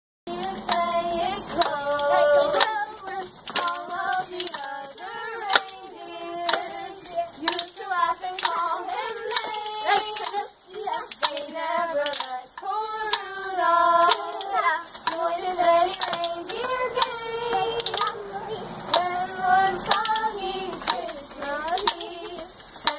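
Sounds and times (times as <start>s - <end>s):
children singing a carol: 0.3s - 22.9s
hand claps: 0.4s - 19.2s, 19.8s - 22.9s.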